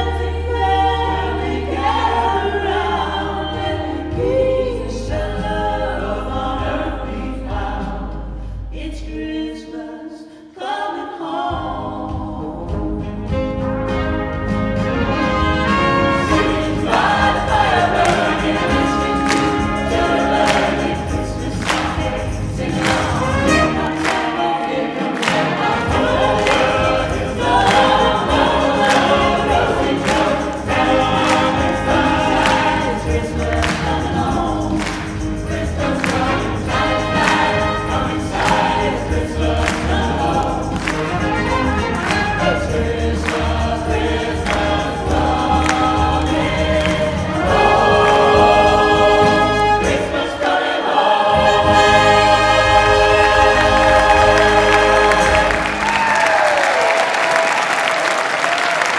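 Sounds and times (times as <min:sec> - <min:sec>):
mixed choir singing: 0:00.0 - 0:58.9
grand piano: 0:11.6 - 0:58.5
steady beat: 0:16.2 - 0:24.4, 0:25.3 - 0:50.2.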